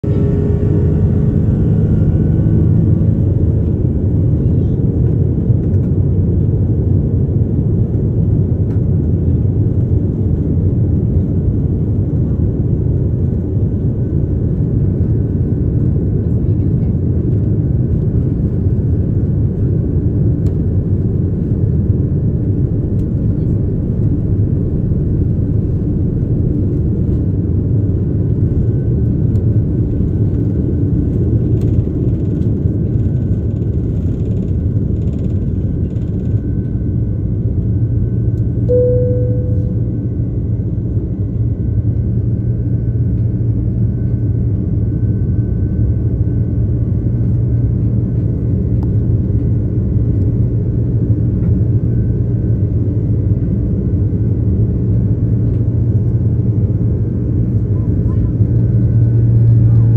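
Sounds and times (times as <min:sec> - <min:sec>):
jet engines rumbling: 0:00.0 - 0:43.6, 0:55.1 - 0:59.9
short ringing tone: 0:38.7 - 0:40.3.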